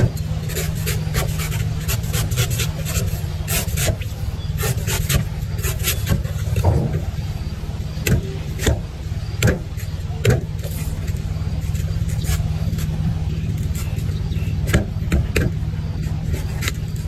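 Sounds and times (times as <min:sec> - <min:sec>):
knife scraping coconut husk: 0:00.0 - 0:07.3, 0:08.0 - 0:17.0
steady low hum: 0:00.0 - 0:17.0
sharp knocks: 0:08.0 - 0:10.6, 0:14.6 - 0:15.6.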